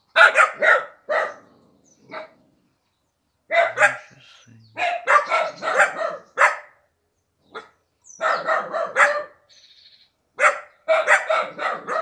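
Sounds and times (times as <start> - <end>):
dogs barking: 0.1 - 2.4, 3.5 - 6.8, 7.5 - 9.4, 10.4 - 12.0.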